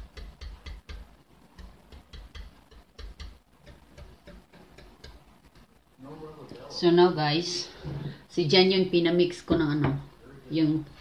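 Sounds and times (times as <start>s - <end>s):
whisk clicking against bowl: 0.0s - 5.7s.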